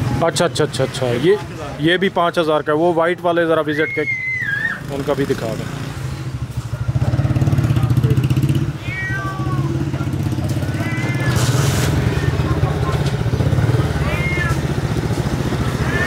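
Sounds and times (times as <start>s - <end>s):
cats meowing: 8.6s - 13.1s, 13.9s - 14.9s, 15.6s - 16.0s
engine running: 9.6s - 16.0s.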